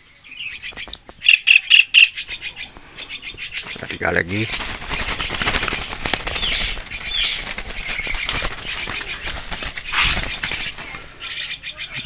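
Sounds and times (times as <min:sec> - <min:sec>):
short high bird calls: 0:00.0 - 0:03.8
bird wings flapping: 0:00.5 - 0:11.2.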